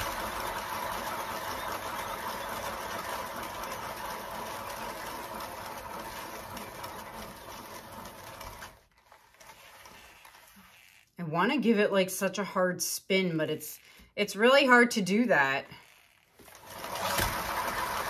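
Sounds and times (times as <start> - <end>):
turntable bearing whirring: 0.0 - 11.2, 15.7 - 18.0.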